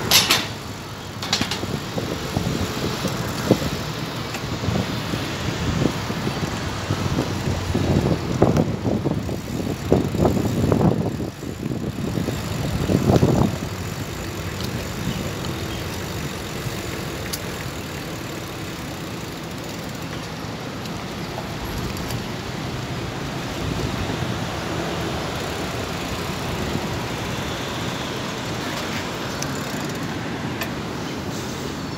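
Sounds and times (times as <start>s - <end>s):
wind buffeting microphone: 0.0s - 17.1s
road traffic noise: 0.0s - 31.9s.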